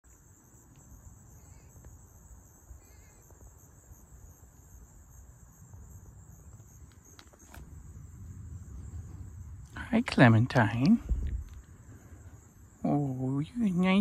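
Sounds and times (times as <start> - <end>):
insects chirring: 0.0 - 14.0
low rumble: 7.7 - 12.8.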